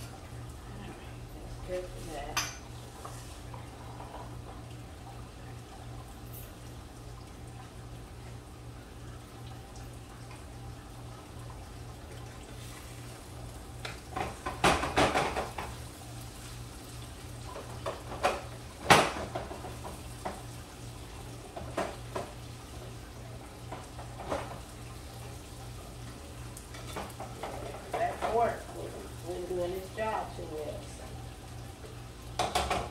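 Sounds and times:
pots and pans clattering: 13.9 - 15.8, 17.5 - 20.5, 23.7 - 24.7, 26.7 - 28.6, 32.4 - 32.9.

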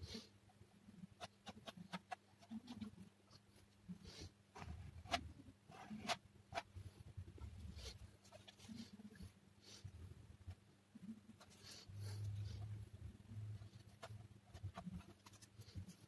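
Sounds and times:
plastic spatula scraping paste: 1.0 - 3.1.

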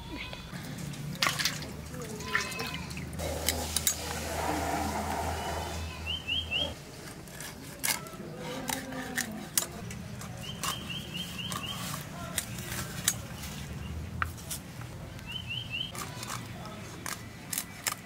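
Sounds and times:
small bird chirping: 6.0 - 6.8, 10.4 - 11.9.

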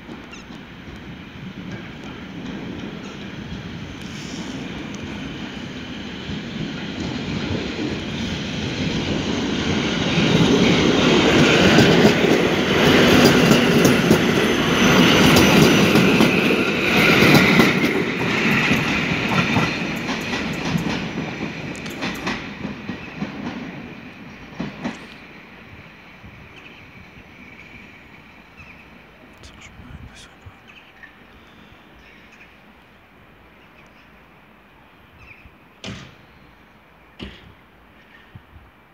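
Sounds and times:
electric train passing: 0.0 - 38.9
wheels clacking over rail joints: 10.2 - 25.2.

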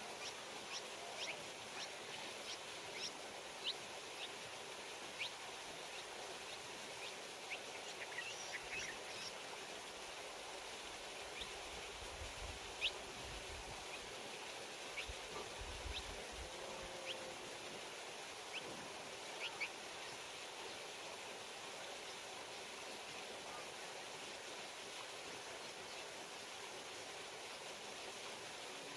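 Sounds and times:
outdoor hiss: 0.0 - 28.9
small birds chirping: 0.1 - 9.4, 12.7 - 13.2, 14.8 - 17.3, 18.4 - 20.8.

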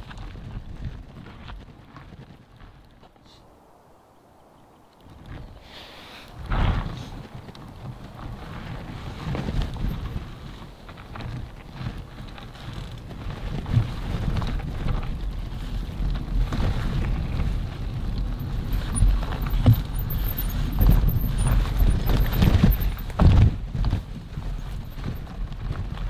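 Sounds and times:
wind on microphone: 3.5 - 26.0
tyres on rough ground: 4.4 - 26.0
bike knocks and rattles: 6.4 - 26.0.

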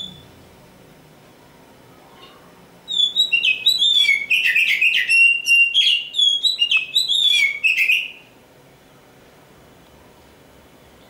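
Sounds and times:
songbird singing whistled phrases: 0.0 - 0.4, 2.9 - 8.4.

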